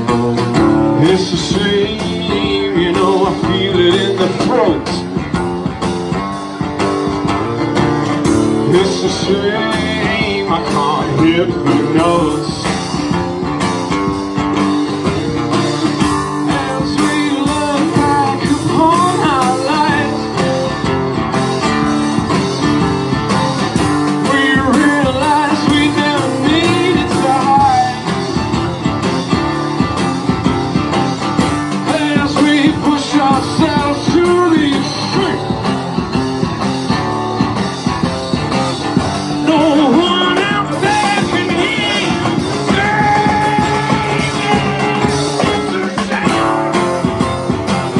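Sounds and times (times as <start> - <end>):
person singing: 0.0 - 5.2, 8.3 - 13.6, 14.9 - 20.6, 24.0 - 28.2, 31.5 - 35.6, 39.2 - 47.1
drum kit with cymbals: 0.0 - 47.9
guitar strummed hard: 0.0 - 47.9.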